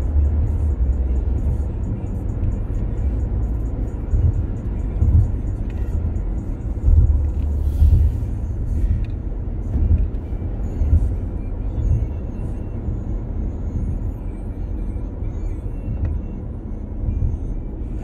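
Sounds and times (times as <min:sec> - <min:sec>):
music playing: 0:00.0 - 0:12.6
car road noise from cabin: 0:00.0 - 0:18.0.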